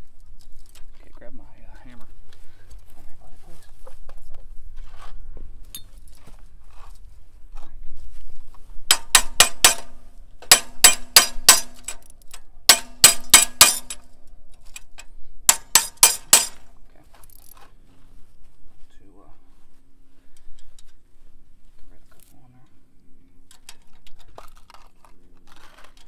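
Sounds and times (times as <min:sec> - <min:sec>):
hammer striking steel bar: 0:08.9 - 0:12.0, 0:12.7 - 0:14.0, 0:15.5 - 0:16.6.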